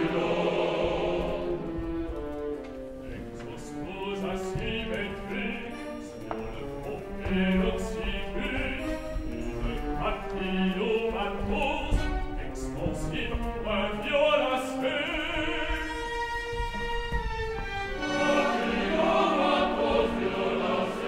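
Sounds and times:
man singing opera: 0.0 - 1.7, 3.0 - 16.5
orchestra playing: 0.0 - 21.0.

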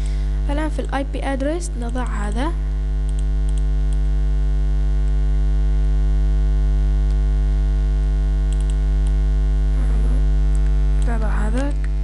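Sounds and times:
electrical mains hum: 0.0 - 12.0
faint clicks: 3.1 - 4.1, 8.5 - 9.2.

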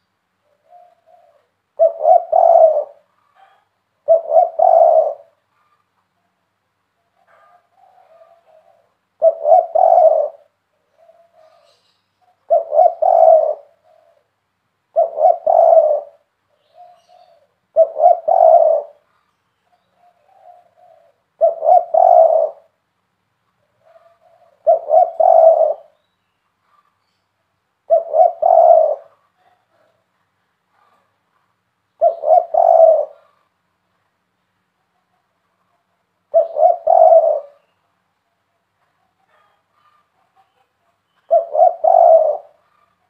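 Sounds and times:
dove cooing: 0.0 - 5.8, 7.2 - 14.3, 14.9 - 22.8, 23.6 - 26.0, 27.8 - 30.0, 30.7 - 31.2, 32.0 - 33.6, 36.2 - 37.8, 39.2 - 43.0.

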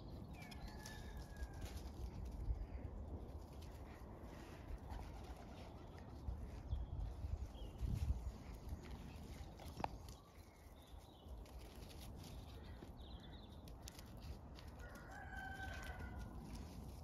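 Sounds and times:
rooster crowing: 14.8 - 16.4.

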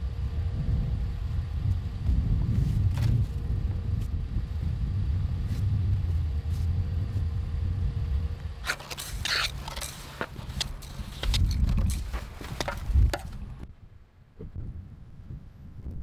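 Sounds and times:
low rumble: 0.0 - 16.0
brush sweeping snow: 2.4 - 4.2, 5.3 - 7.4, 8.6 - 13.0.

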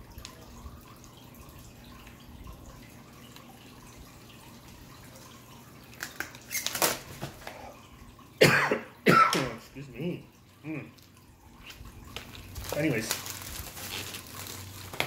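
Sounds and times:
faint crinkles and ticks: 0.1 - 7.6, 10.9 - 15.0.

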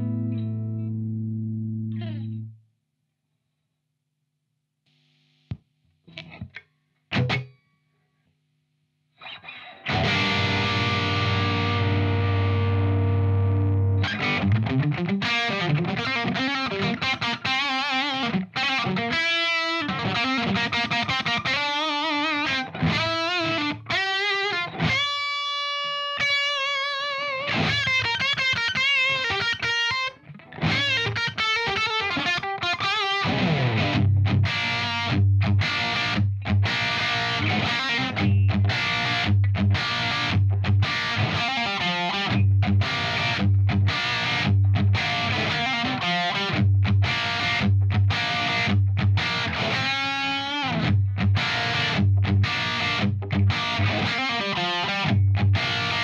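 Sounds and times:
distorted electric guitar: 0.0 - 2.5, 4.9 - 7.6, 9.2 - 56.0.

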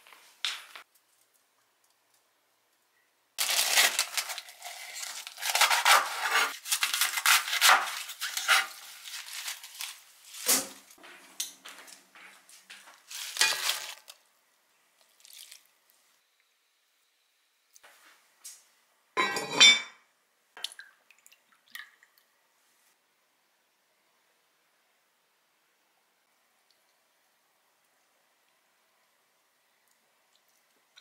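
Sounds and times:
cabbage leaves rustling and tearing: 3.4 - 11.0, 12.9 - 14.2, 15.0 - 15.7
plastic zipper bag crinkling: 3.4 - 11.0, 13.0 - 14.2
kitchen handling clatter: 19.2 - 19.9.

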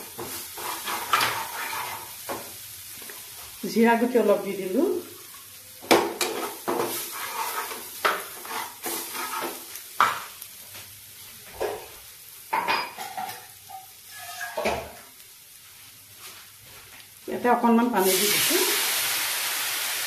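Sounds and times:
metal spatula scraping a pan: 0.0 - 2.5, 6.2 - 10.2, 12.6 - 15.1
food sizzling in a frying pan: 0.0 - 20.0.

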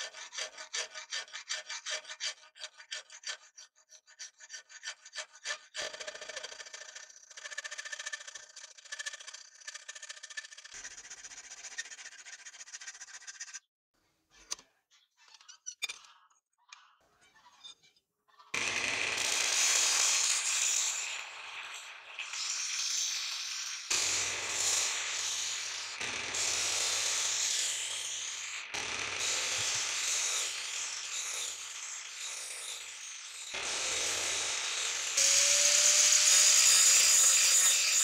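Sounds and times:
hand file rasping on steel: 0.0 - 6.2, 29.2 - 38.0
disc grinder grinding steel: 18.6 - 38.0.

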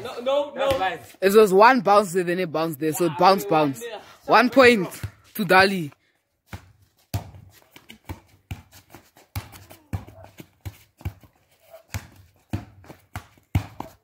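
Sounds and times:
football thudding on stone paving: 0.6 - 1.0, 6.5 - 14.0.

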